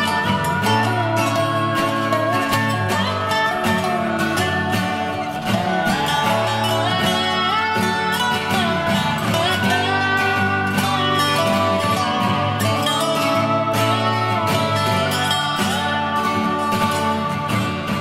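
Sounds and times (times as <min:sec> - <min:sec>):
country tune led by guitar: 0:00.0 - 0:18.0.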